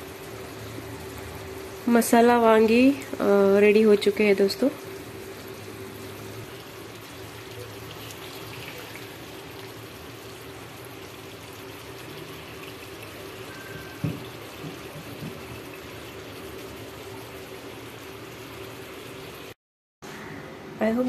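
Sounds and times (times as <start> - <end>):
gravy bubbling: 4.0 - 17.4.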